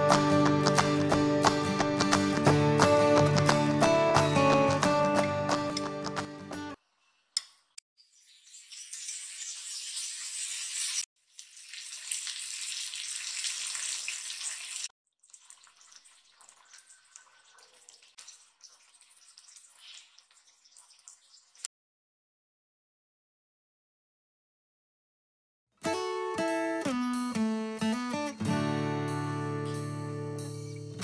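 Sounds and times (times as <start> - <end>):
fish sizzling in hot oil: 8.0 - 21.7.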